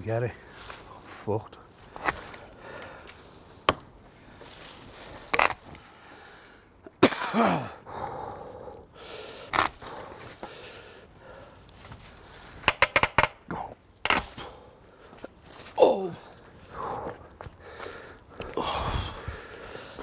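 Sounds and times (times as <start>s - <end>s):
man groaning: 7.3s - 7.8s, 15.7s - 16.4s, 18.5s - 19.3s
man gasping and sighing: 7.3s - 11.6s, 13.5s - 20.0s.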